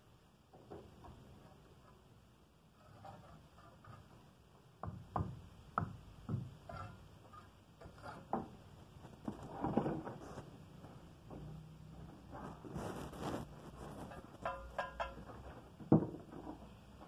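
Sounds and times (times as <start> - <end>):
trowel scraping and tapping brick: 6.3 - 8.6, 13.9 - 15.5.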